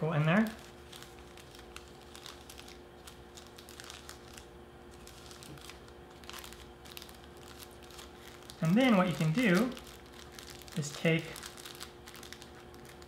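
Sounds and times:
plastic bag crinkling: 0.2 - 13.0.

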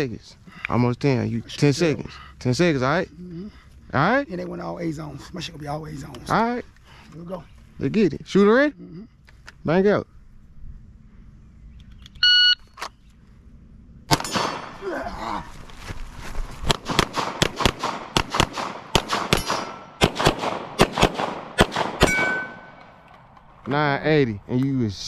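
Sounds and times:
shot timer beep: 12.2 - 12.6
gunshots: 14.1 - 14.9, 16.6 - 23.0.

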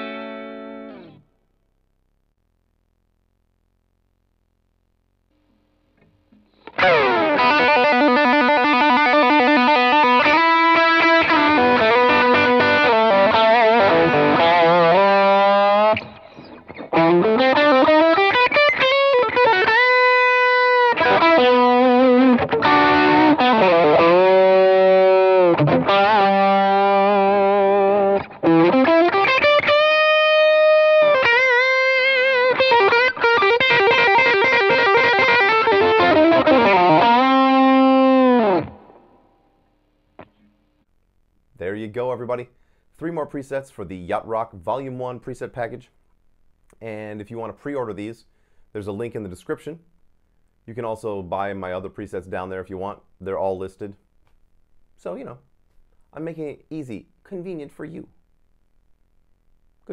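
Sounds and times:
overdriven electric guitar: 0.0 - 1.3, 6.5 - 39.6.

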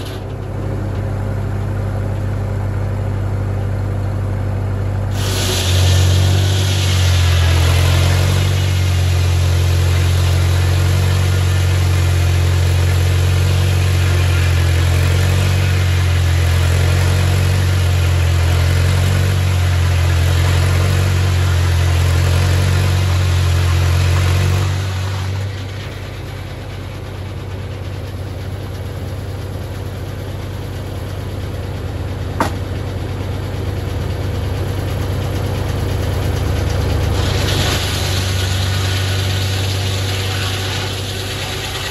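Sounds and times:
tractor engine under load: 0.0 - 41.9
saw blade cutting log: 5.1 - 26.3, 32.4 - 32.6, 37.1 - 41.9
sharp knock: 32.4 - 32.7.

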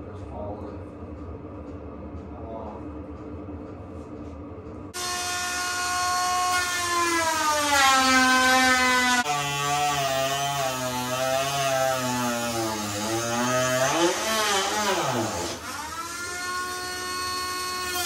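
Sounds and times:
cordless cutting tool whining: 5.0 - 18.0.

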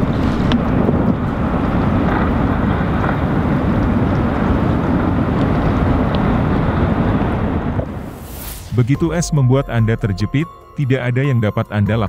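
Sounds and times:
wind buffeting microphone: 0.0 - 8.9.

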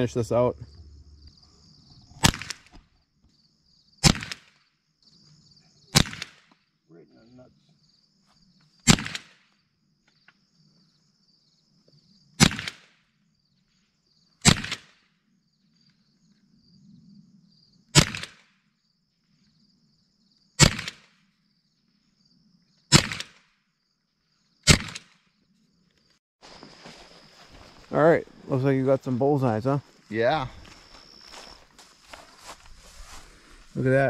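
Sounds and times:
rifle shots: 2.2 - 2.7, 4.0 - 4.6, 5.9 - 6.5, 8.8 - 9.4, 12.4 - 12.9, 14.4 - 15.0, 18.0 - 18.4, 20.6 - 21.1, 22.9 - 23.5, 24.7 - 25.2.

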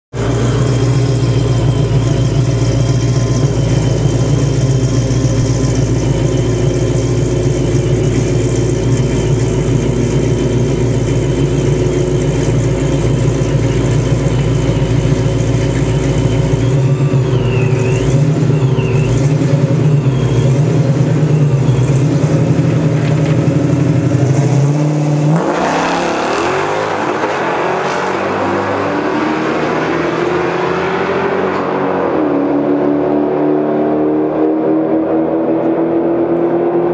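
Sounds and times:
car engine idling: 0.1 - 25.4
car accelerating hard: 15.4 - 36.9.

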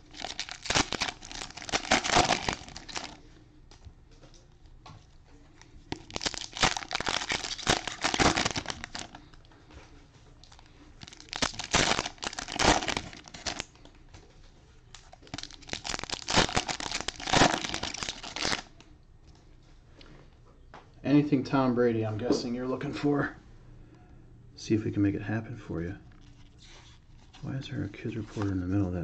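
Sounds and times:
cellophane crinkling and tearing: 0.0 - 3.2, 5.8 - 9.4, 10.4 - 13.8, 14.9 - 18.8.

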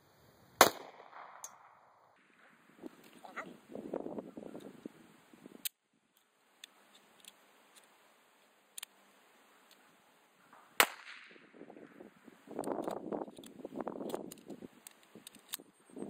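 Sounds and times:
pistol shot: 0.6 - 2.5, 10.8 - 11.6
metallic clicks of pistol handling: 5.6 - 7.9, 8.7 - 9.0, 12.6 - 15.7.

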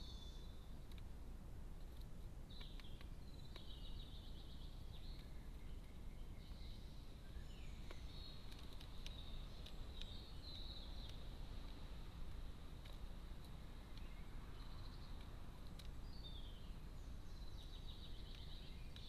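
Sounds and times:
low background noise: 0.0 - 19.0
songbird chirps and trills: 0.0 - 19.0
bird pecking seed ticks: 0.8 - 1.2, 1.8 - 3.8, 7.8 - 16.1, 18.0 - 19.0.

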